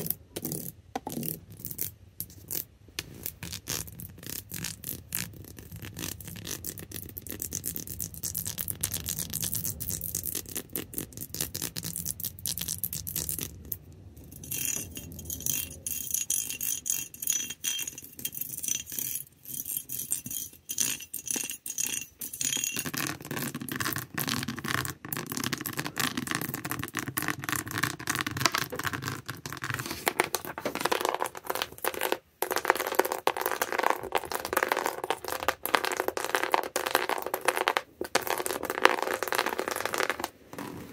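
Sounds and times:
thin high ringing: 0:14.3 - 0:22.9.

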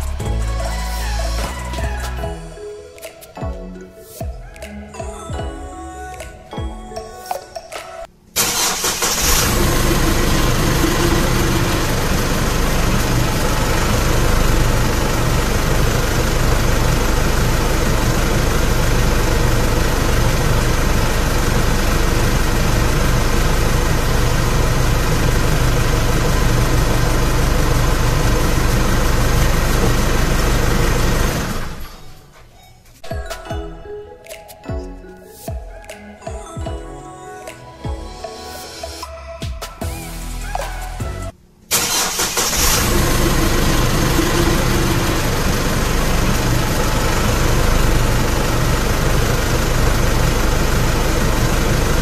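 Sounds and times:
diesel engine starting and idling: 0:00.0 - 0:02.7, 0:08.4 - 0:32.4, 0:40.7 - 0:52.0.

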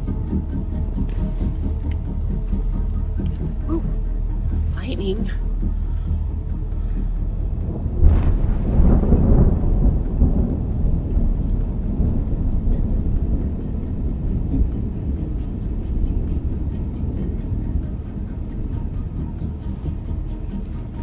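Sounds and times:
low rumble: 0:00.0 - 0:21.0
thunderclap rolling: 0:07.3 - 0:20.3.

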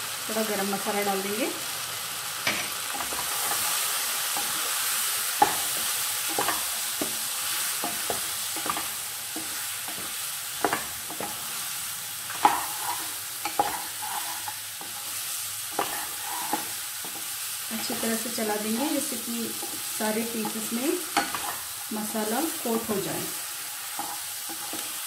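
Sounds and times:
eggplant sizzling in oil: 0:00.0 - 0:25.0
spatula scraping and tapping pan: 0:05.4 - 0:11.5, 0:12.3 - 0:18.0, 0:19.4 - 0:21.7, 0:23.8 - 0:25.0.

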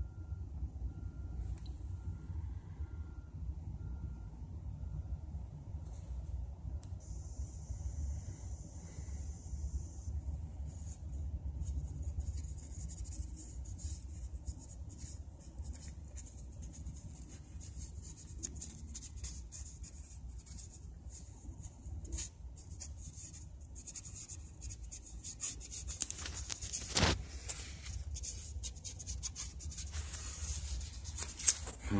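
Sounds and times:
soft rubbing and scratching: 0:10.5 - 0:31.9.

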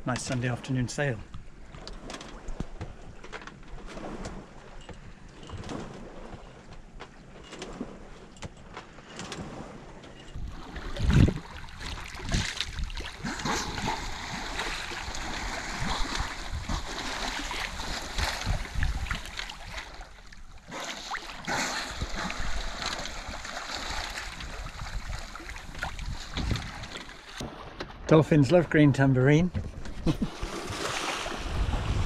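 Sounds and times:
water rushing along a hull: 0:00.0 - 0:32.0
wind buffeting the microphone: 0:10.3 - 0:20.1, 0:24.2 - 0:27.6, 0:29.4 - 0:32.0.

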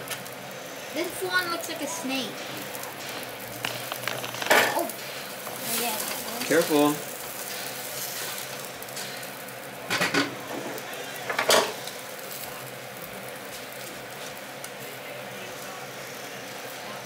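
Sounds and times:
bread sizzling in a skillet: 0:00.0 - 0:17.0
metal utensils clattering: 0:03.0 - 0:04.9, 0:11.3 - 0:11.8.

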